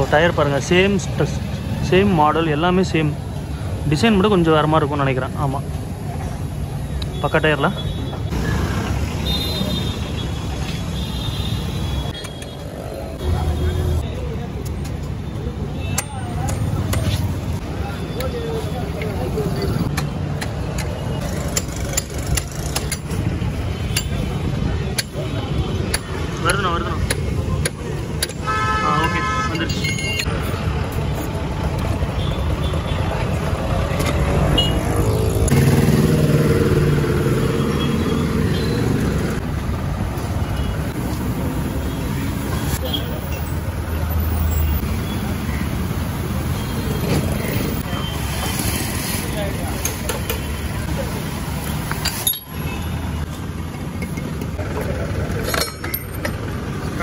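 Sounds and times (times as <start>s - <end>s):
road traffic rumbling: 0.0s - 57.0s
metallic tool clinks: 29.7s - 30.3s, 52.0s - 52.6s.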